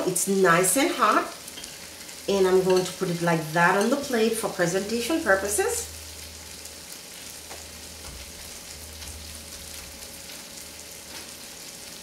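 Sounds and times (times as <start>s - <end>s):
food sizzling in a pan: 0.0s - 12.0s.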